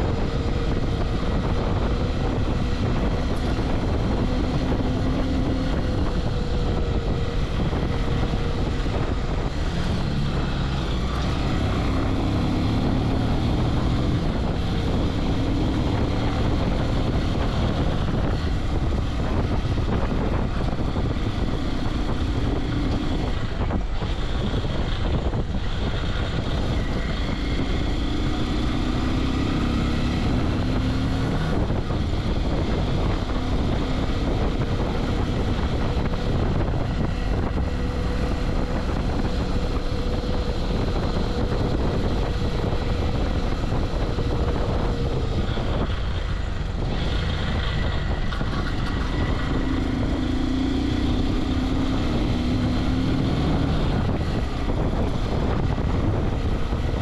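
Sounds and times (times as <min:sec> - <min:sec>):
motorcycle engine revving: 0:00.0 - 0:57.0
wind rush on microphone: 0:00.0 - 0:57.0.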